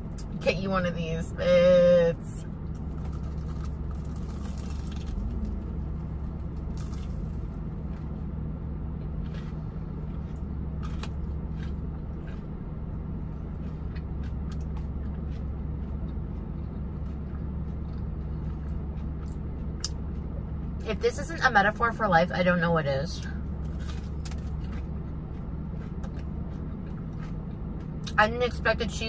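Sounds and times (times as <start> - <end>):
car engine hum: 0.0 - 29.0
person chewing food: 2.6 - 8.3, 8.9 - 20.8, 23.4 - 28.2.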